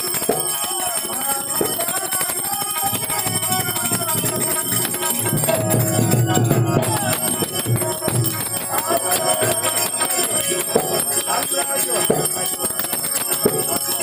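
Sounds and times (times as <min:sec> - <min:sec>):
harmonium: 0:00.0 - 0:14.0
high metallic ringing: 0:00.0 - 0:14.0
man singing devotional song: 0:00.0 - 0:14.0.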